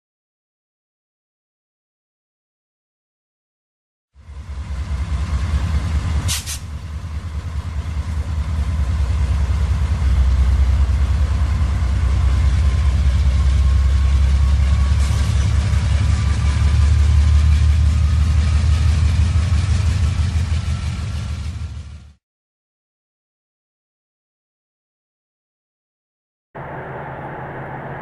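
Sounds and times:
model train cars rumbling: 4.2 - 22.2
brief high hiss: 6.3 - 6.7.

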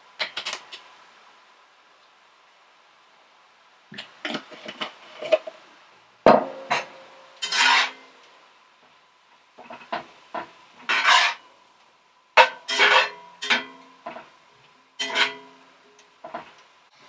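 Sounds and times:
utensil scraping a skillet: 6.7 - 8.2, 9.6 - 11.5, 12.4 - 14.3, 15.0 - 15.6.

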